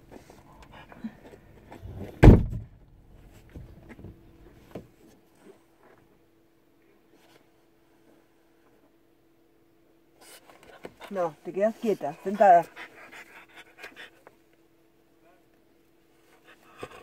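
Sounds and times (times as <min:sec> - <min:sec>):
faint steady hum: 0:00.0 - 0:17.0
car door slamming shut: 0:02.2 - 0:02.7.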